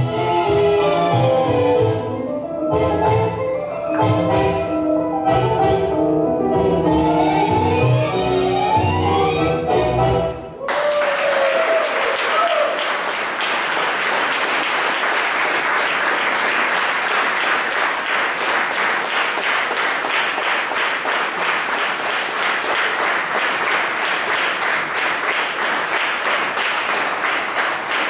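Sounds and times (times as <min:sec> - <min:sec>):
audience applauding: 0:10.6 - 0:28.0.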